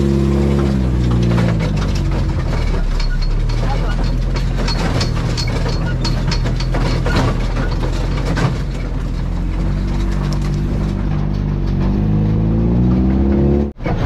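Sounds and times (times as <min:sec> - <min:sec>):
off-road vehicle engine running: 0:00.0 - 0:14.0
irregular clicks and rattles: 0:01.0 - 0:12.1.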